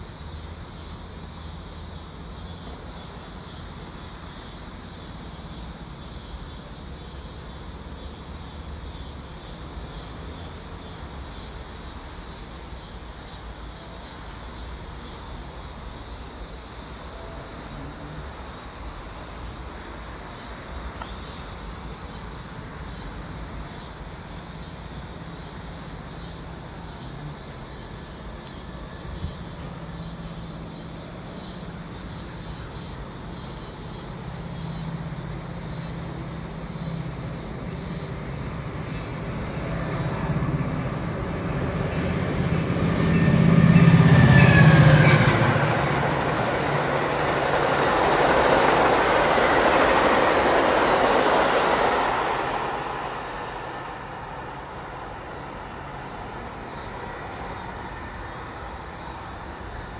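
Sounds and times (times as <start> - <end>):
diesel locomotive engine drone: 0.0 - 59.9
train cars rumbling and clattering: 25.1 - 59.9.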